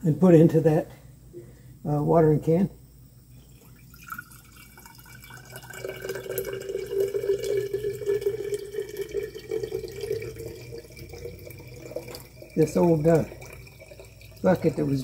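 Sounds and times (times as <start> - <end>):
liquid pouring into glass: 3.3 - 15.0.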